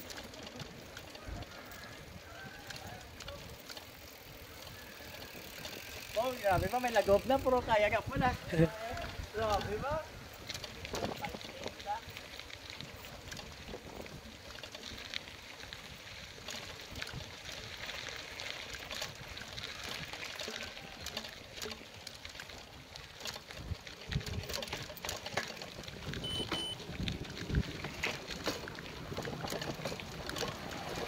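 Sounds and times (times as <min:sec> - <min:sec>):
bicycle tyres rolling on concrete: 0:00.0 - 0:31.0
small rattles and clicks: 0:00.0 - 0:31.0
wind buffeting microphone: 0:08.0 - 0:11.4, 0:25.8 - 0:28.2.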